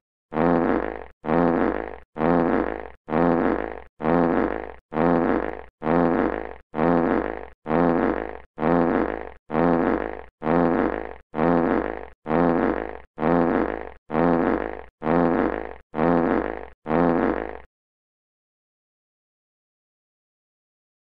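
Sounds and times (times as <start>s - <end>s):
buzzing fart sound effect: 0.3s - 17.7s.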